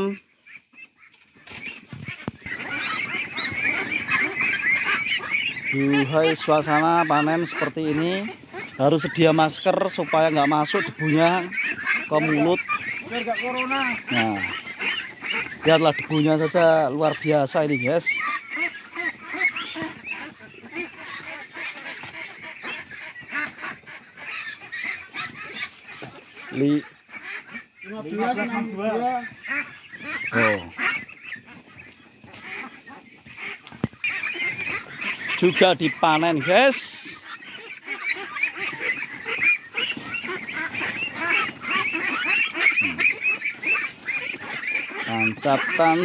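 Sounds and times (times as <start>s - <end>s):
ducks quacking: 0.0s - 46.0s.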